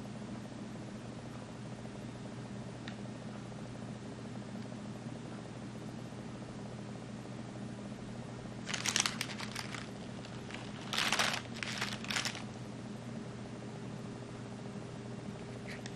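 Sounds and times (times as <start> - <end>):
faint steady hum: 0.0 - 15.9
plastic wrapping crinkling: 8.6 - 12.6.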